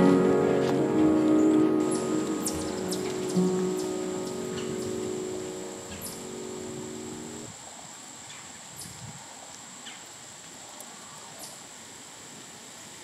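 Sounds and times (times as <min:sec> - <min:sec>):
soundtrack music: 0:00.0 - 0:07.4
thin high tone: 0:00.0 - 0:07.5
steady hiss: 0:00.0 - 0:13.0.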